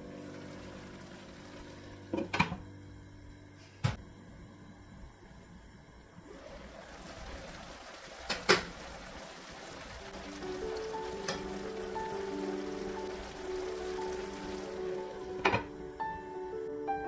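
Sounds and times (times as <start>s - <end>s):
water faintly simmering: 5.1s - 16.2s.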